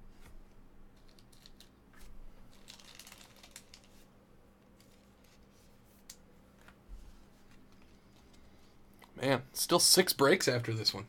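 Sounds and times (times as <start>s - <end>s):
foil wrapper crinkling: 2.5s - 4.1s.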